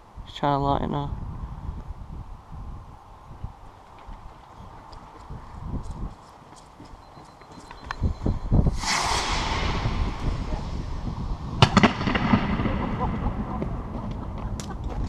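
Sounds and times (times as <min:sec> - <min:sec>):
firework rocket whooshing: 0:08.7 - 0:13.9
firework bursting bangs: 0:08.7 - 0:14.3
low thuds: 0:08.7 - 0:15.0.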